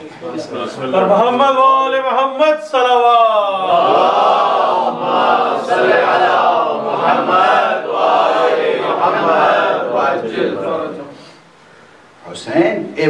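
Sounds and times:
crowd chanting in unison: 0:03.6 - 0:11.2.

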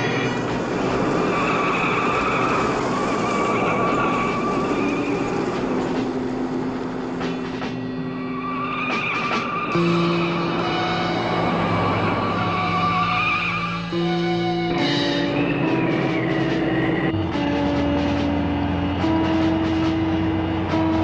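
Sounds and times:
tyres squealing and skidding: 0:00.0 - 0:21.0
car engine running hard: 0:16.2 - 0:21.0.

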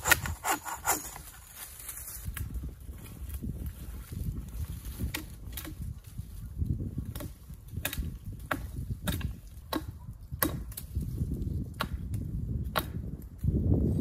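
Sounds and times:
hatchet chopping wood: 0:00.0 - 0:01.3, 0:04.9 - 0:05.9, 0:07.0 - 0:13.1.

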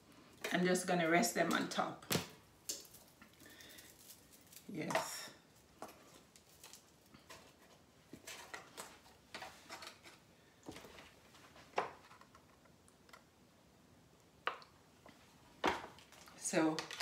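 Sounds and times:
foil pan crinkling: 0:16.0 - 0:17.0.

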